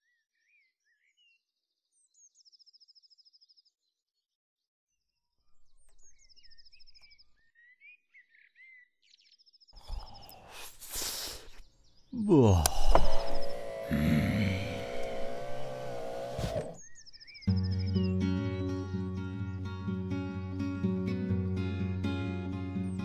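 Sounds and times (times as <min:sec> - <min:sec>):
birds chirping and trilling: 0:05.0 - 0:13.5, 0:14.4 - 0:18.2.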